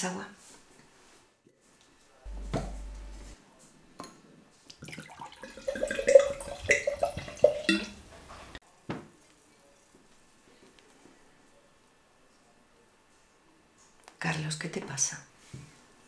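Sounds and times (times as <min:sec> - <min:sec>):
wine glugging into a glass: 0:04.8 - 0:07.9.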